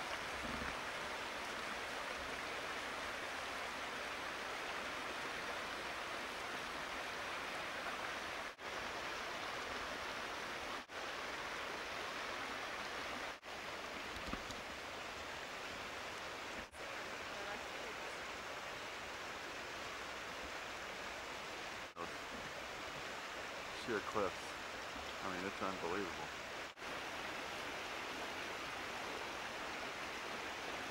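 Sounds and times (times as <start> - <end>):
steady rushing hiss: 8.5 - 30.9.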